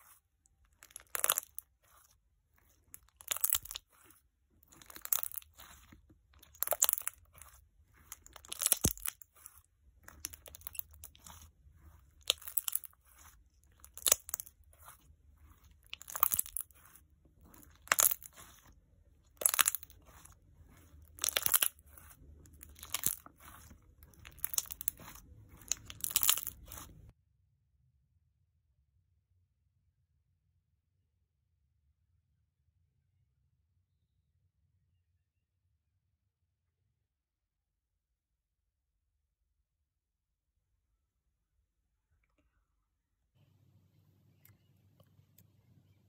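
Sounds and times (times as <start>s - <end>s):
slime squelching and popping: 0.0s - 27.1s.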